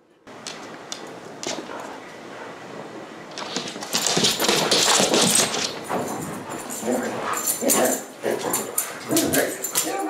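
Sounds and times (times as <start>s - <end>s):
dogs scuffling: 3.3s - 10.0s.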